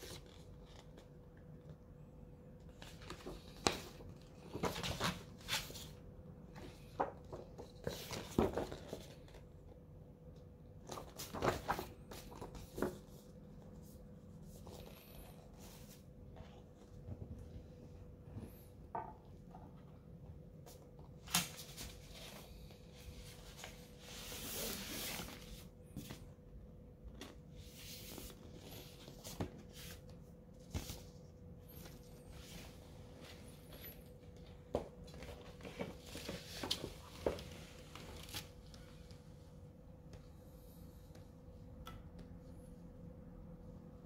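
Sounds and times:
faint steady hum: 0.0 - 44.0
paper rustling: 10.8 - 13.2.

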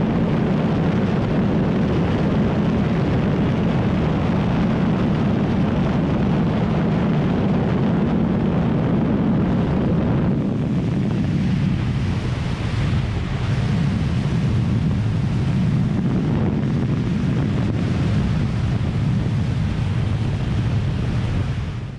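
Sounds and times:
motorcycle engine drone: 0.0 - 21.9
wind rushing over microphone: 0.0 - 21.9.

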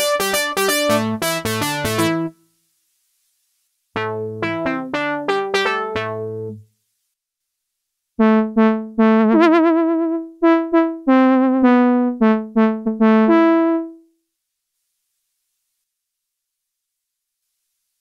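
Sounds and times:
synthesizer brass notes and chords: 0.0 - 2.4, 4.0 - 6.6, 8.2 - 14.0.

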